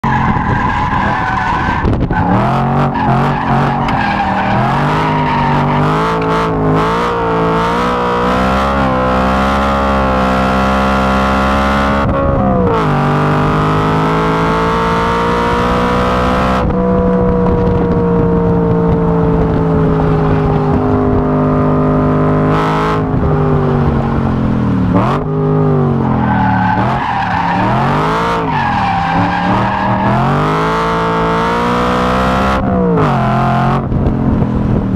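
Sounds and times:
car engine revving hard: 0.1 - 34.8.

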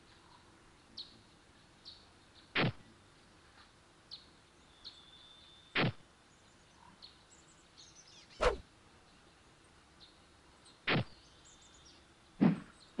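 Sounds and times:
faint bird chirps: 0.0 - 13.0
downward-sweeping whooshes: 8.4 - 8.6.

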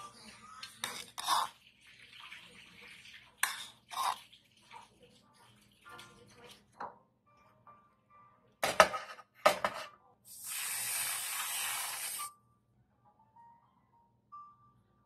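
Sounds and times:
whipped cream dispenser hissing: 10.3 - 12.3.

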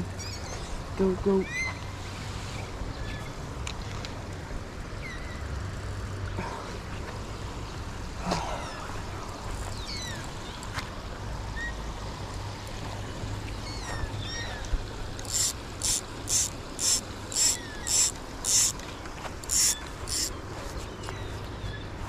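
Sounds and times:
spinning reel ratcheting: 15.2 - 18.8, 19.4 - 20.3.

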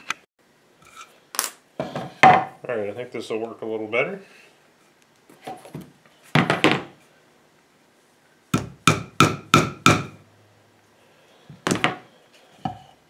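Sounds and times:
hammer striking a nail: 8.5 - 10.2.

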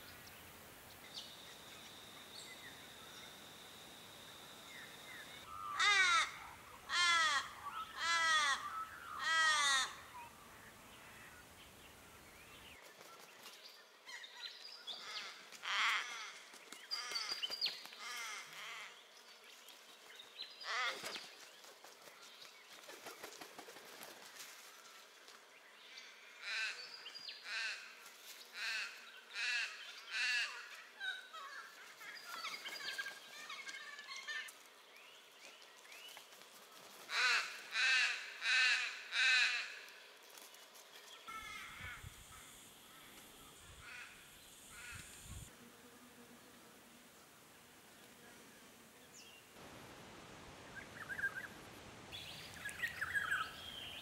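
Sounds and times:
crows cawing: 5.5 - 10.1.

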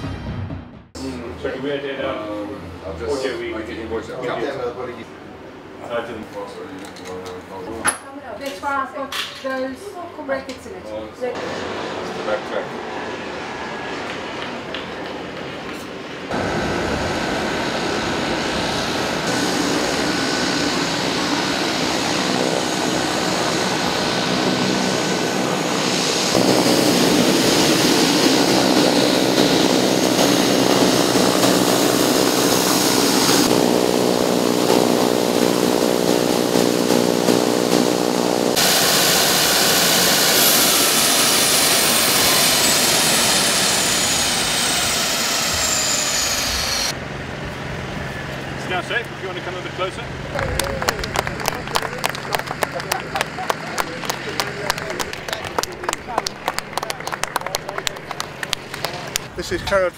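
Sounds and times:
airliner engines roaring: 1.0 - 7.7, 11.2 - 59.9
high whine falling in pitch: 16.3 - 59.4.

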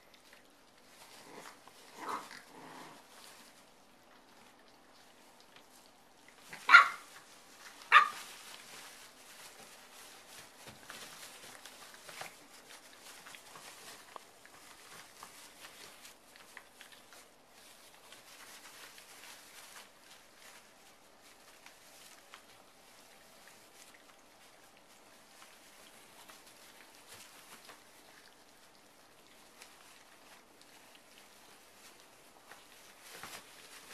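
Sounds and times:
shredded paper rustling: 5.6 - 33.9
puppy barking: 6.6 - 7.2, 7.9 - 8.2.

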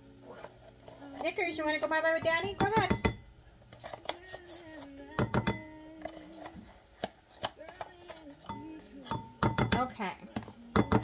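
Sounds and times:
knocks and taps on counter: 2.2 - 3.2, 5.2 - 5.6, 9.2 - 9.9.

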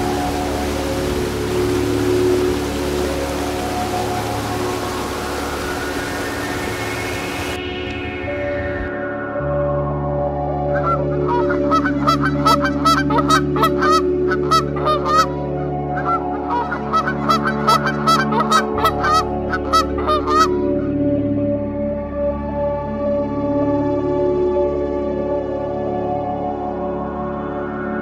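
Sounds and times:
ambient music pad: 0.0 - 28.0
geese honking: 10.8 - 15.4, 16.0 - 20.7.

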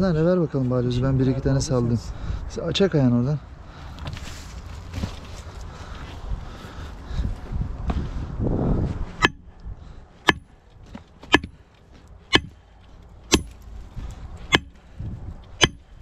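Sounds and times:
sledgehammer striking rock: 9.2 - 9.5, 10.2 - 10.5, 11.2 - 11.6, 12.3 - 12.6, 13.3 - 13.6, 14.5 - 14.8, 15.6 - 16.0.

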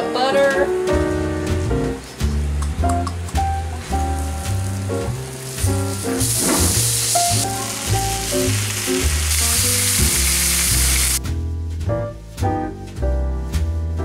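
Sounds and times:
background music with double bass: 0.0 - 14.0
food sizzling on a griddle: 3.8 - 11.2.

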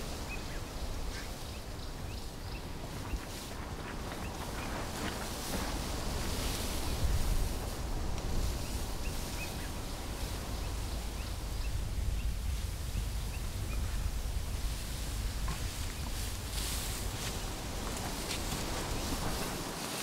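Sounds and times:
steady low rumbling: 0.0 - 19.6.

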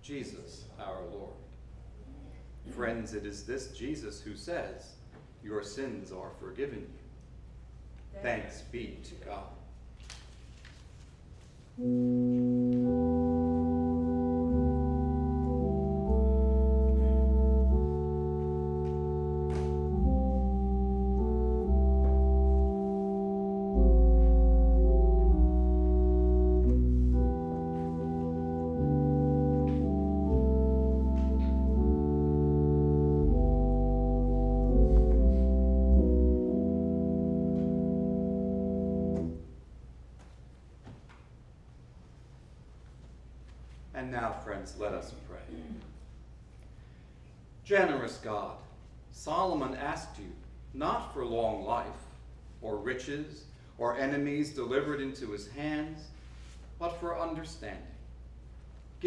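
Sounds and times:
organ playing sustained chords: 11.8 - 39.8.

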